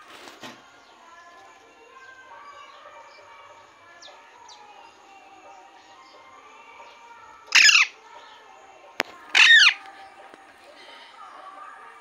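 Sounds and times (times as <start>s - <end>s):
parakeet calls sliding down: 7.5s - 7.9s, 9.3s - 9.8s.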